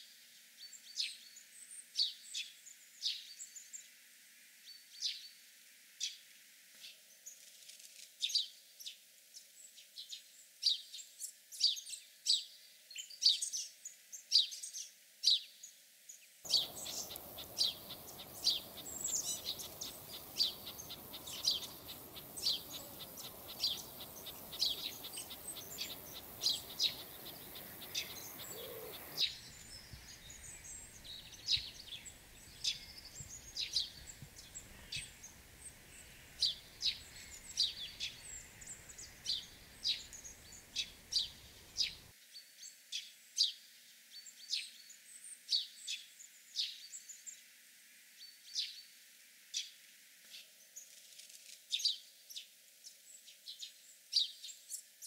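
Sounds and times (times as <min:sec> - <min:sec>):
small songbirds chirping: 0:00.0 - 0:05.4, 0:08.2 - 0:55.0
faint steady background hiss: 0:00.0 - 0:55.0.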